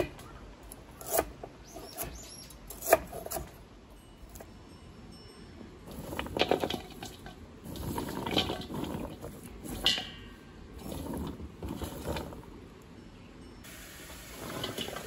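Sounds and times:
root pieces rustling in steel bowl: 0:05.9 - 0:12.6, 0:14.1 - 0:15.0.

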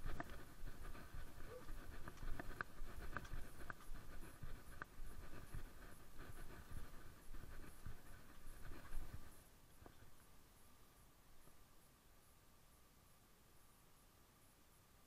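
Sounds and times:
dog panting: 0:00.0 - 0:09.4.

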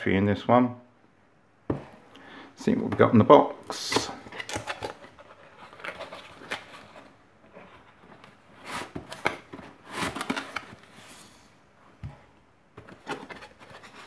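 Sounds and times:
cardboard box rustling and scraping: 0:04.3 - 0:11.1, 0:12.8 - 0:14.0.

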